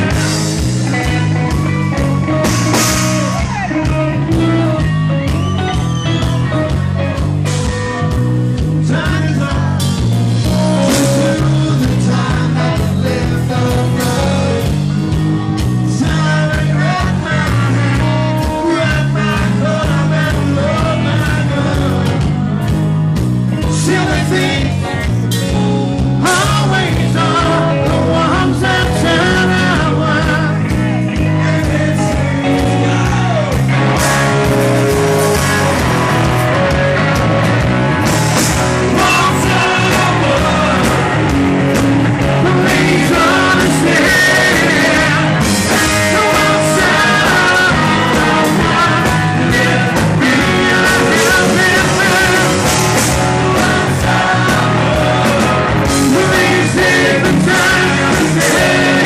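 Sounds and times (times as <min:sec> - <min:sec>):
rock band playing live: 0:00.0 - 0:59.0
man singing into microphone: 0:08.8 - 0:10.0, 0:10.7 - 0:14.7, 0:15.9 - 0:22.3, 0:23.6 - 0:25.2, 0:26.2 - 0:33.5, 0:38.9 - 0:41.1, 0:42.3 - 0:59.0.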